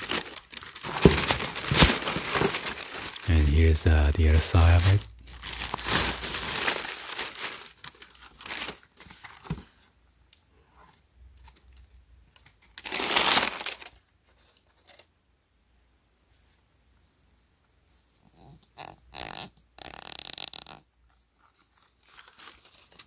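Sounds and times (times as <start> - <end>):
plastic bag and paper crinkling: 0.0 - 9.8, 11.4 - 15.1, 21.5 - 23.0.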